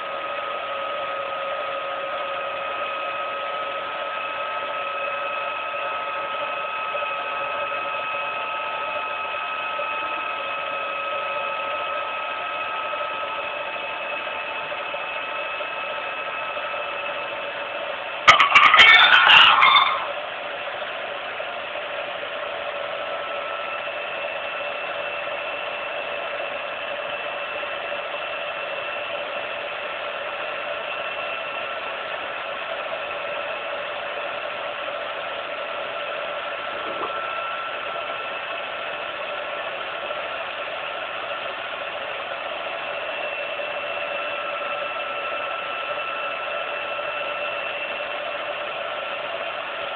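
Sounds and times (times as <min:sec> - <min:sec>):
film projector whine: 0:00.0 - 0:18.4, 0:19.2 - 0:49.9
loud clattering burst: 0:18.3 - 0:20.1.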